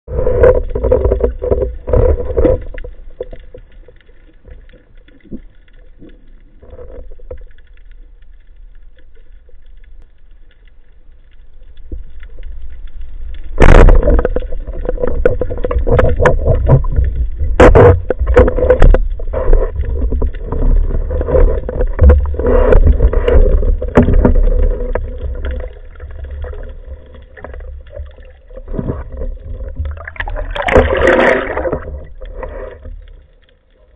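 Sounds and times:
rumbling water noise: 0:00.0 - 0:33.9
underwater knocks: 0:13.6 - 0:32.8.

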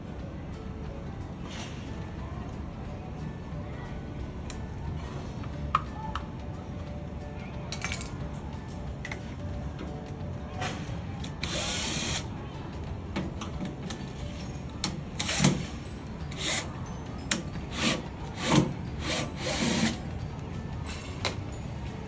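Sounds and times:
cordless drill running in bursts: 0:17.8 - 0:20.0.

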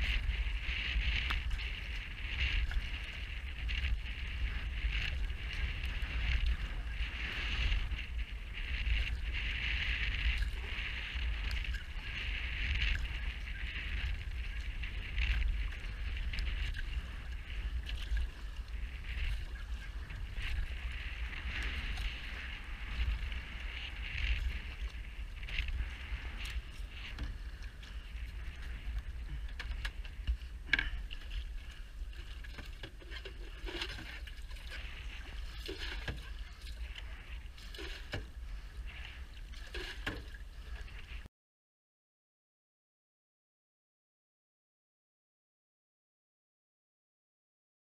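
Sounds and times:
water rushing along canoe hull: 0:00.0 - 0:41.3
wind buffeting microphone: 0:00.0 - 0:41.3.

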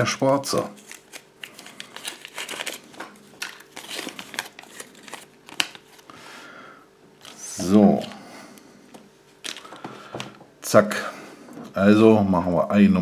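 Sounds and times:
paper crinkling: 0:00.2 - 0:06.2, 0:07.2 - 0:08.3, 0:09.3 - 0:10.2.

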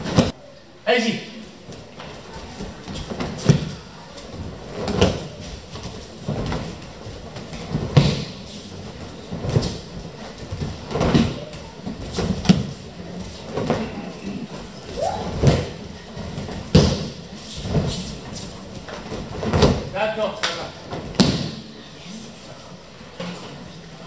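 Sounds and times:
bodies thudding onto mats: 0:00.0 - 0:00.3, 0:02.5 - 0:19.9, 0:20.8 - 0:21.6.

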